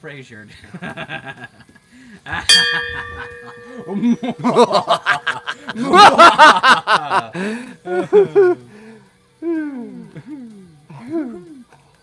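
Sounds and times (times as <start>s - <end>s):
men laughing: 0.6s - 8.7s
hand bell ringing: 2.4s - 5.5s.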